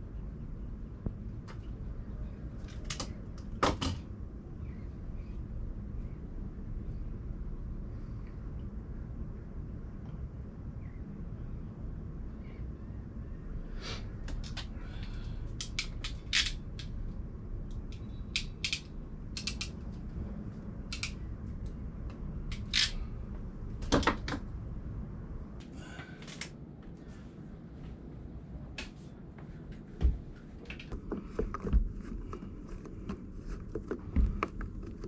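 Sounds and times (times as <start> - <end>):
low background rumble: 0.0 - 35.0
wire stripper clicks and snaps: 15.6 - 17.0, 17.7 - 19.8, 20.9 - 23.0.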